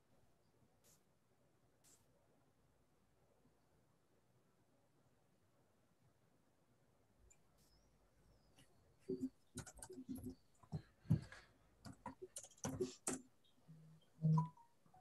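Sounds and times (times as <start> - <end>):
keyboard typing: 9.0 - 15.0.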